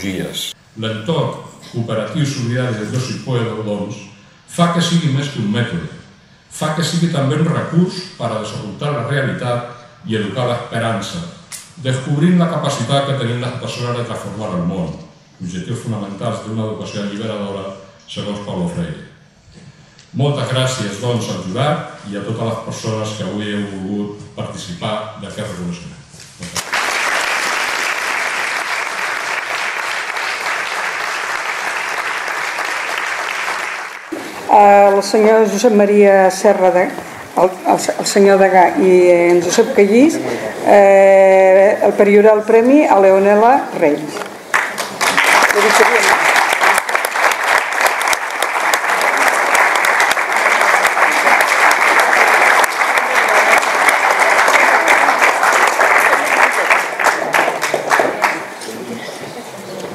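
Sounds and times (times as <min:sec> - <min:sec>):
audience clapping: 0:00.0 - 0:00.6, 0:26.5 - 0:34.5, 0:44.2 - 0:58.7.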